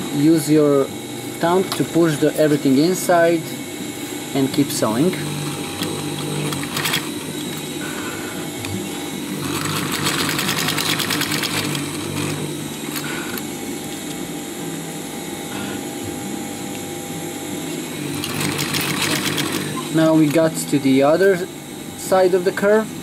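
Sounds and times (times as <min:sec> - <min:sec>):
sewing machine stitching: 0:05.1 - 0:07.5, 0:09.4 - 0:13.2, 0:18.1 - 0:20.4.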